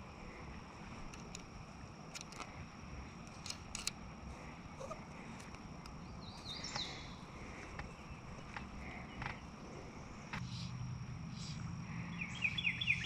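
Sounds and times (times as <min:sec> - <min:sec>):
fly rod and line clicking: 0:00.9 - 0:04.1.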